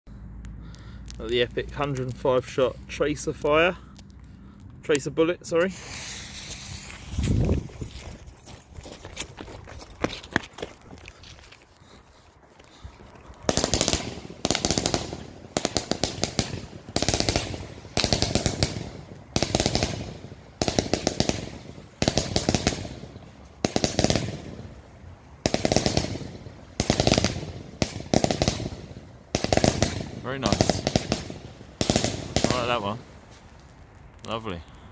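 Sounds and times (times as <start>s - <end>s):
firework volleys of sharp pops: 3.5s - 7.5s, 13.3s - 34.9s.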